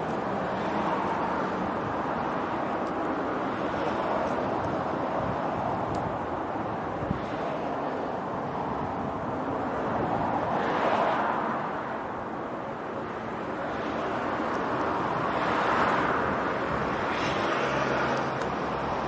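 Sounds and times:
wind on microphone: 0.0s - 12.0s
road traffic passing: 0.0s - 19.0s.

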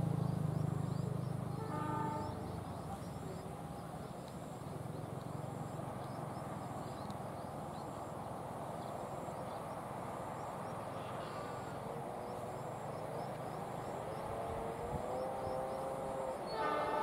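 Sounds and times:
faint steady tones: 0.0s - 17.0s
locomotive engine rumble: 0.0s - 17.0s
train running noise: 11.9s - 17.0s.

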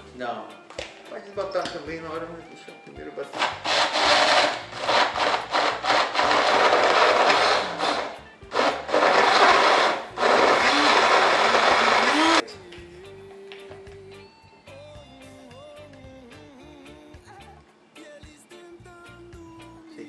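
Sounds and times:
blender running: 3.4s - 12.4s.

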